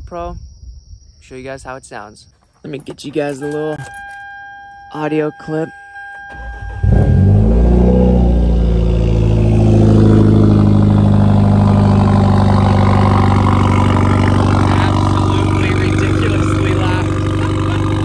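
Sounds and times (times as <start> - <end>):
car engine starting and idling: 6.0 - 18.0.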